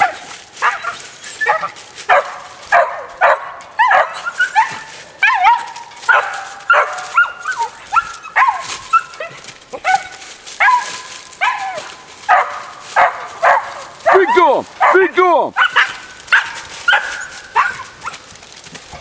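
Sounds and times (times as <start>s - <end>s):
dogs barking and yelping: 0.0s - 19.0s.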